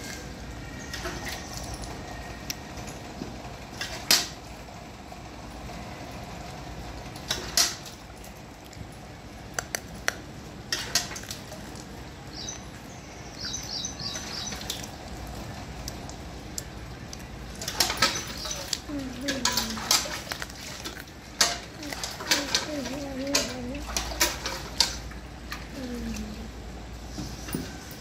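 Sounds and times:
metallic clinks against pail: 17.6 - 20.3.

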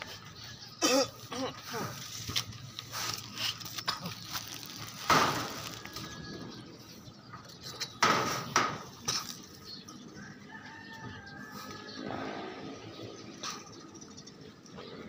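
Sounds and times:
leaves and twigs rustling and snapping: 2.1 - 6.3.

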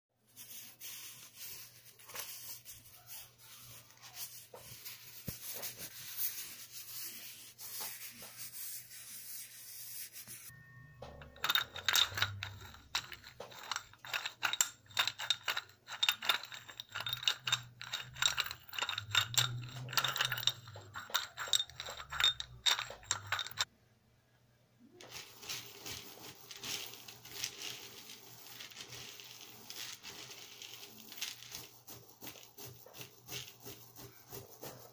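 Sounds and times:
crackling and scraping of objects: 10.2 - 23.7, 24.9 - 34.9.

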